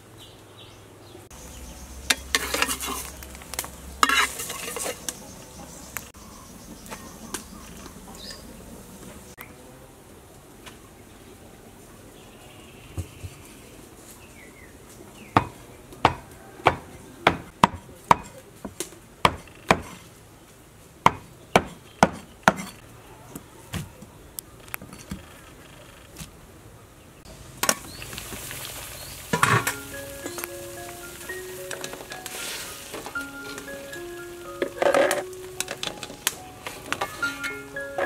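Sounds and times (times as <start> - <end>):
knife chopping on wooden block: 15.4 - 18.4, 19.3 - 20.0, 21.1 - 22.8
water boiling: 27.3 - 33.2
mallet percussion music: 29.4 - 38.0.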